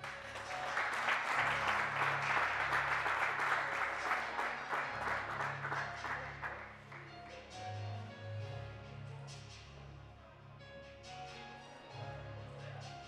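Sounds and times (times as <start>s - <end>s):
crowd applause: 0.0s - 7.1s
quiet background music: 0.0s - 13.0s.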